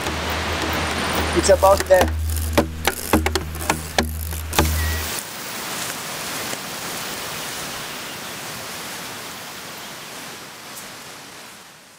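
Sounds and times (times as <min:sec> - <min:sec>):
steady rushing noise: 0:00.0 - 0:06.1.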